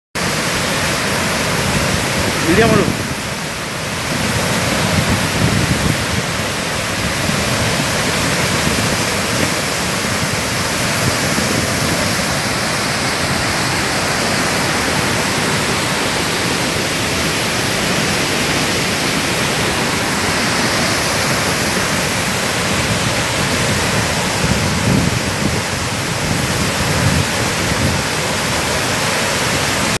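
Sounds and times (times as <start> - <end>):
water rushing down spillway: 0.2 - 30.0.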